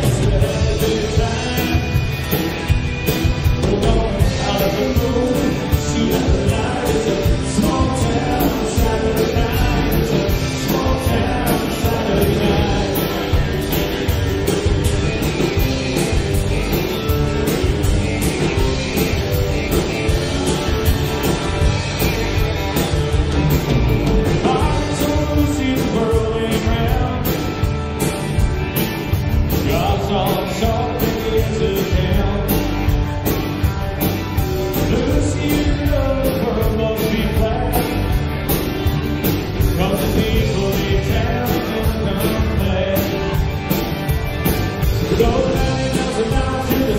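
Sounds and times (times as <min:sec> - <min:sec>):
lead vocal singing: 0:00.0 - 0:02.2, 0:03.4 - 0:13.4, 0:24.3 - 0:27.4, 0:29.5 - 0:32.7, 0:34.8 - 0:38.1, 0:39.6 - 0:43.4, 0:45.0 - 0:46.9
country-rock band playing: 0:00.0 - 0:46.9.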